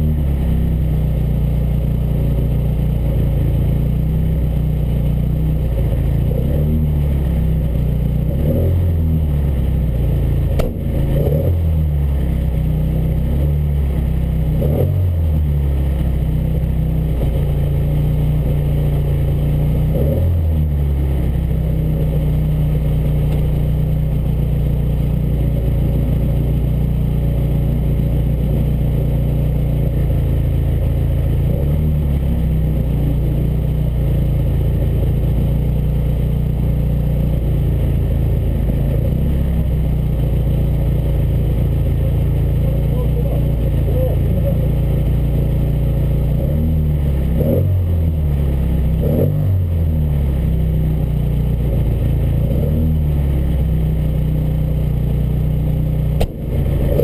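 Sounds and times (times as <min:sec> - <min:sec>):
car engine idling: 0:00.0 - 0:57.0
engine throttle blips: 0:56.1 - 0:57.0.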